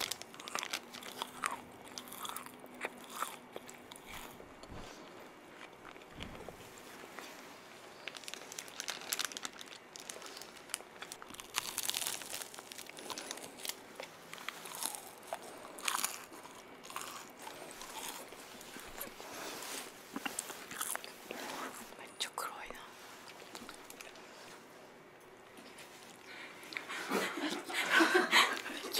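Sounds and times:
foil wrapper crinkling: 0.0 - 2.1, 8.0 - 15.2
crunching bites: 0.0 - 4.4, 8.0 - 19.1
chewing: 0.0 - 4.8, 8.1 - 19.4, 20.1 - 21.9.

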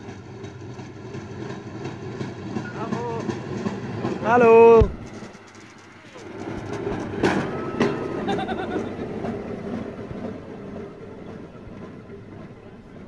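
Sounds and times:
sharp wheel clacks: 0.0 - 8.5
rail cart rumbling on track: 0.0 - 13.0.

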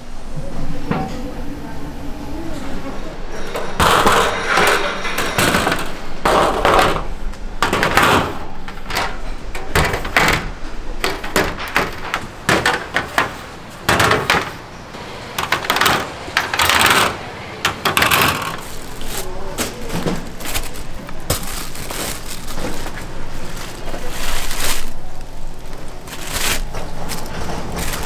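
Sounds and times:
food preparation knocks and clacks: 3.8 - 14.6, 15.4 - 23.1.

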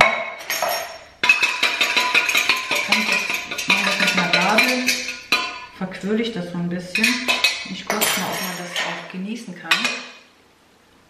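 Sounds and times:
whisk clinking in metal jug: 0.4 - 5.7, 6.9 - 9.0.

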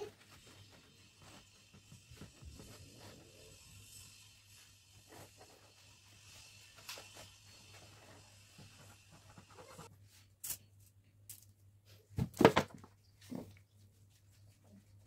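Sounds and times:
plastic bottle knocks and rattles: 12.2 - 12.9.

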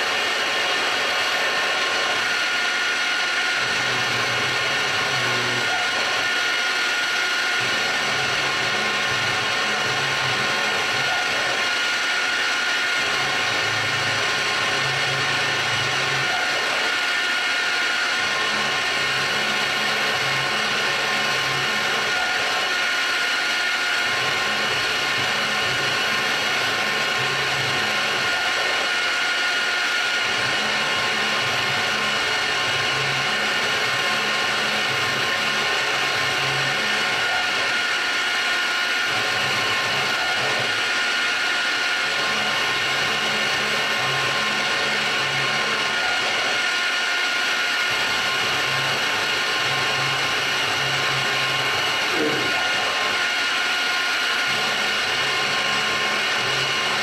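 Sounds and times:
stepper motors humming: 47.9 - 57.0.

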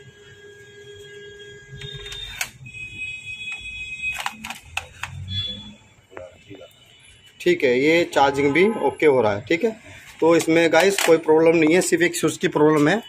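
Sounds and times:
sharp clicks: 3.5 - 5.3
electronic beep tones: 5.1 - 6.6.

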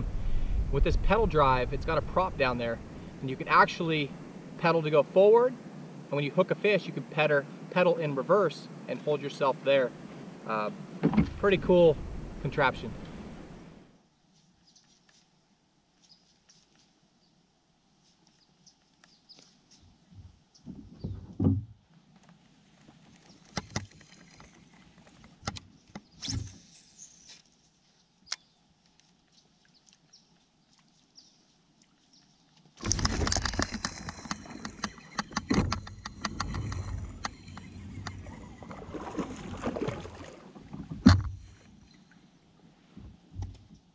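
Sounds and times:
small clicks and knocks: 23.1 - 26.1, 32.6 - 38.2.

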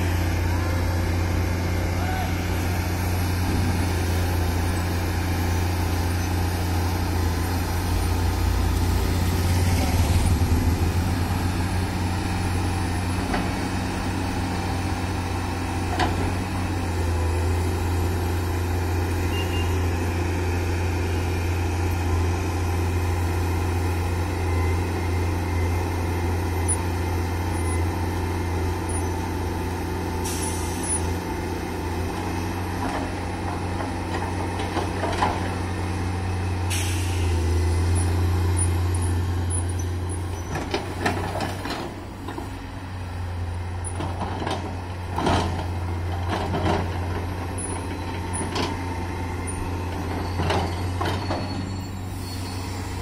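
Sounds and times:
excavator diesel engine running: 0.0 - 53.0
short hiss: 36.7 - 37.4.

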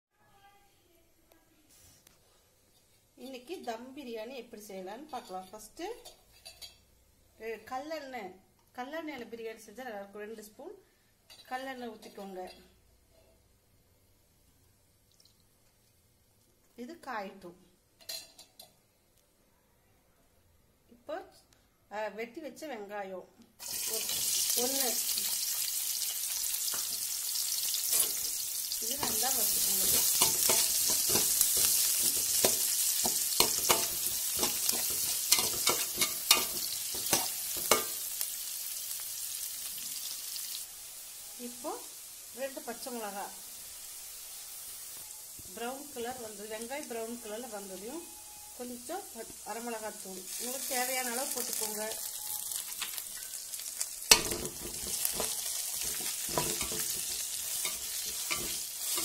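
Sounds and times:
onions sizzling in oil: 23.6 - 59.0
spoon scraping a metal pan: 27.6 - 28.4, 29.0 - 38.0, 54.1 - 59.0.

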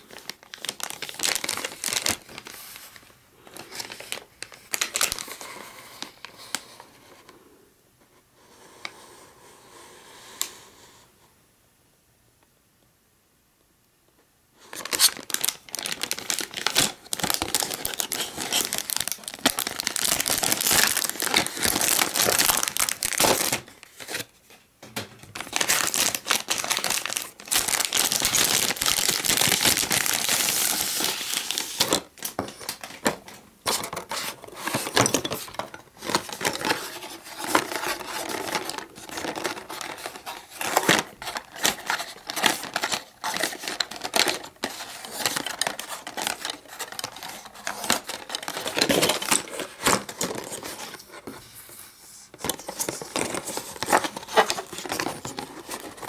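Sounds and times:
plastic bag crinkling: 0.0 - 5.4, 14.6 - 24.3, 25.2 - 51.1, 52.4 - 56.0.

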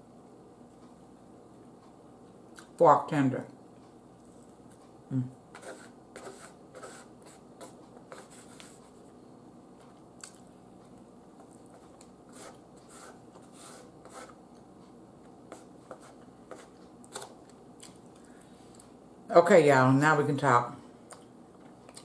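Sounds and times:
soft chewing: 3.8 - 9.2, 9.8 - 19.0, 21.0 - 22.0.

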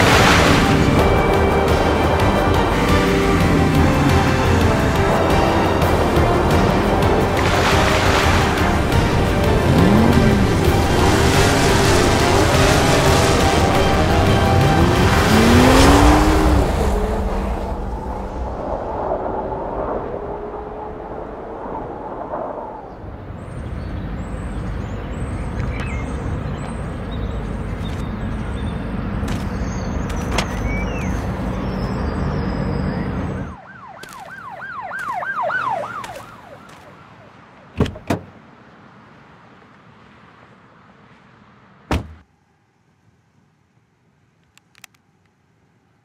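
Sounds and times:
car driving over sand: 0.0 - 33.4
rising and falling chirps: 8.9 - 27.5, 28.1 - 36.7.

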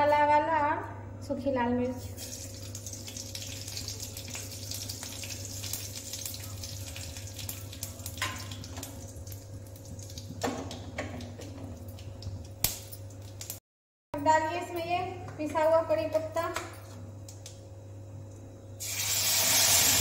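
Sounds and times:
spices sizzling and crackling in oil: 2.1 - 13.6.

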